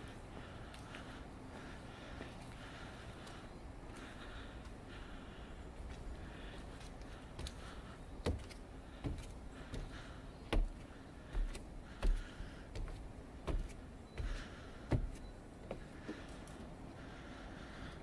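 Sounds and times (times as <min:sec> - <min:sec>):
footsteps on wooden stairs: 0:07.3 - 0:16.3.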